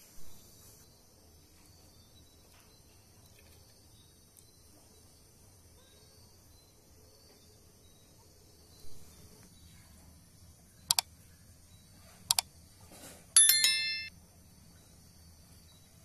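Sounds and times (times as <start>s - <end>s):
bright bell chime: 13.4s - 14.1s.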